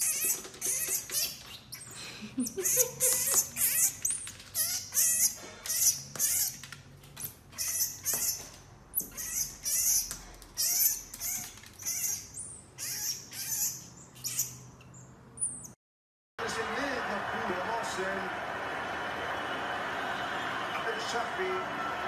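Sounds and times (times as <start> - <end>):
marmoset squeaky calls: 0.0 - 15.8.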